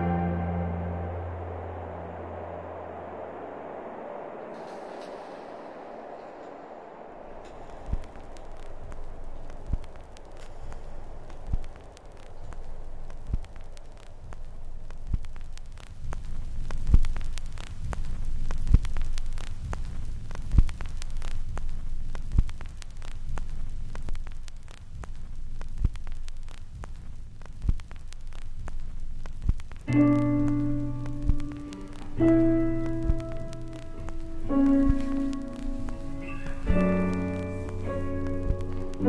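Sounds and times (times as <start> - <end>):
sustained keyboard chords: 0.0 - 2.8, 29.9 - 39.0
slow soft beat: 0.0 - 3.9, 7.3 - 39.0
faint crackle: 0.0 - 39.0.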